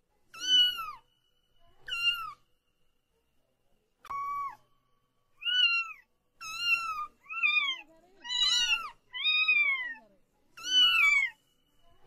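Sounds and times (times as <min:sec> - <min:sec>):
kitten meowing: 0:00.4 - 0:01.0, 0:01.9 - 0:02.4, 0:04.1 - 0:04.6, 0:05.4 - 0:10.0, 0:10.6 - 0:11.4.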